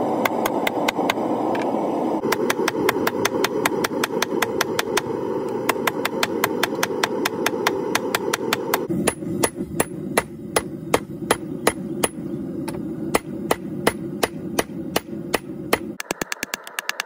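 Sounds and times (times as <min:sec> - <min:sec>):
forge burner rushing: 0:00.0 - 0:17.0
hammer striking steel on an anvil: 0:05.7 - 0:16.0.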